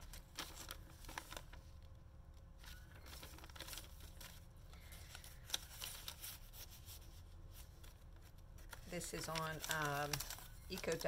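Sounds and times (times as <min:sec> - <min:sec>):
paper rustling and crinkling: 0:00.0 - 0:01.9, 0:02.6 - 0:11.0.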